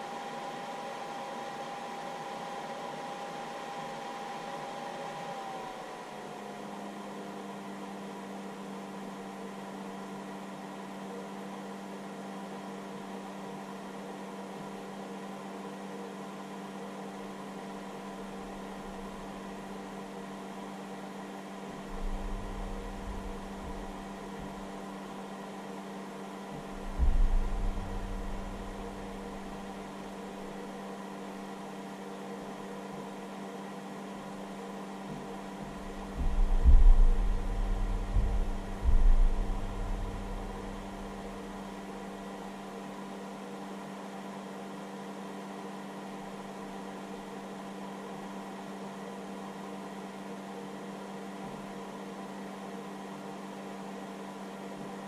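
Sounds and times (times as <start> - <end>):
charger cooling fan humming: 17.2 - 43.6
low thuds and rumbles: 21.9 - 24.6, 26.7 - 29.7, 35.6 - 41.5.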